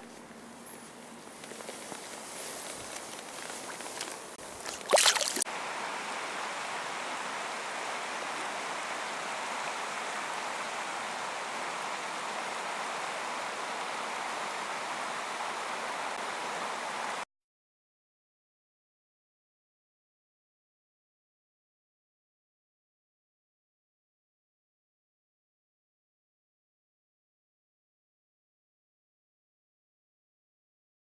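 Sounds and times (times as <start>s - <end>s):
river water rushing: 2.6s - 17.2s.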